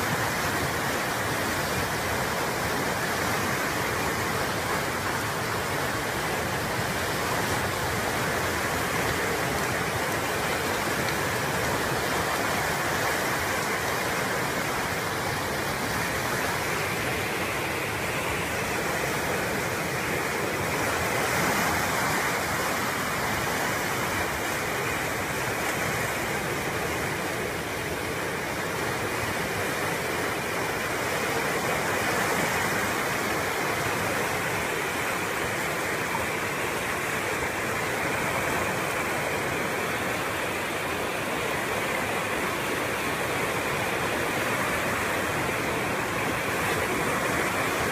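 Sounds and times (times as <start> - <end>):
flood water rushing: 0.0 - 47.9.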